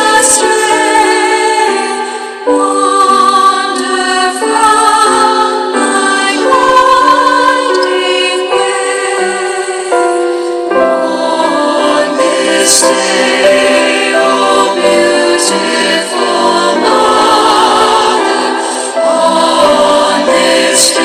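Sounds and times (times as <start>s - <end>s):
choir singing slow chords: 0.0s - 21.0s.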